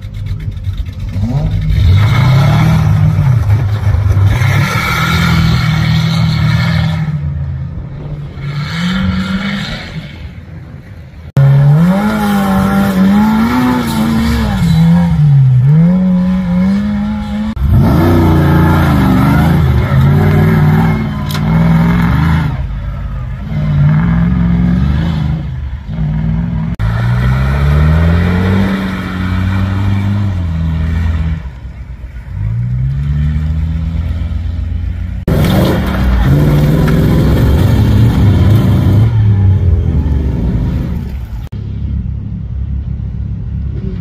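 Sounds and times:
racing buggy engines revving: 0.0 - 44.0.

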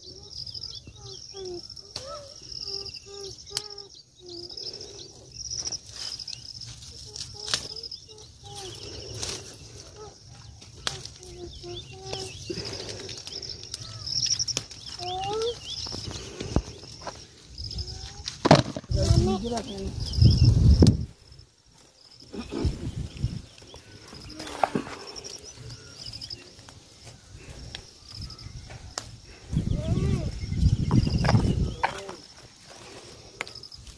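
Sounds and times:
birds calling: 0.0 - 33.9
sharp snaps of gourds picked: 1.8 - 2.3, 3.4 - 3.9, 7.2 - 7.8, 10.6 - 11.4, 13.0 - 15.4, 28.6 - 29.3
leaves rustling: 4.6 - 33.9.

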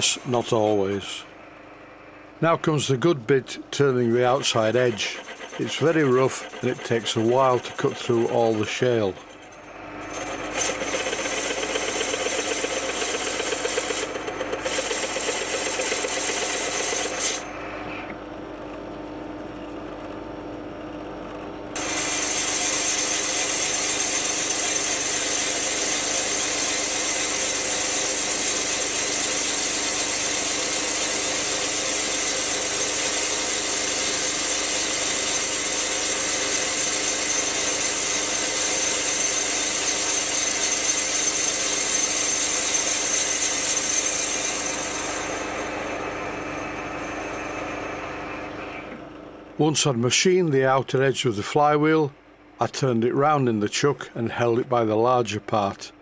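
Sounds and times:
lathe tool cutting metal: 3.8 - 17.5, 21.8 - 48.6
lathe running: 3.8 - 17.6, 21.8 - 49.0.

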